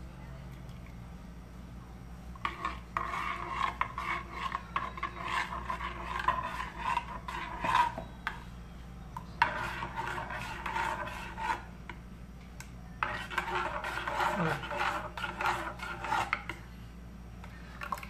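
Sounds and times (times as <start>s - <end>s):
metal spoon scraping a pot: 2.4s - 8.5s, 9.2s - 12.0s, 13.0s - 16.7s.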